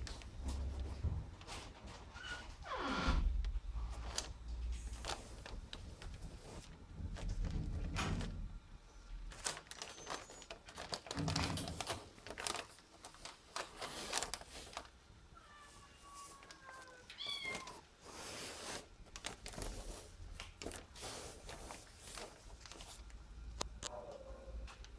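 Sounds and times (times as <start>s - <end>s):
rustles and clicks: 3.9s - 8.5s, 16.1s - 24.0s
cat meowing: 15.4s - 17.9s.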